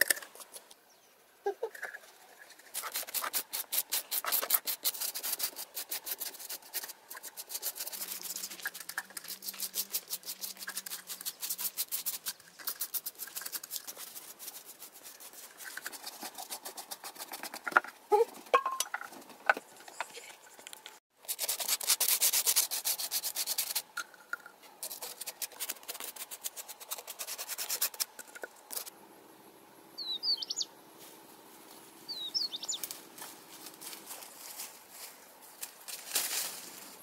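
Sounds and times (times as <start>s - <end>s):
stiff brushes scrubbing stone: 2.5s - 18.7s, 21.2s - 23.9s, 24.8s - 29.0s.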